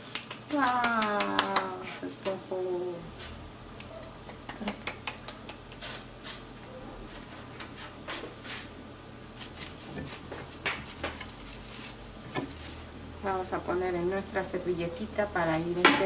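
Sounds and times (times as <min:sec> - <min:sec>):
hands patting tortilla: 0:00.0 - 0:02.0, 0:04.2 - 0:06.5, 0:09.4 - 0:12.7
plastic sheet rustling: 0:09.4 - 0:13.0.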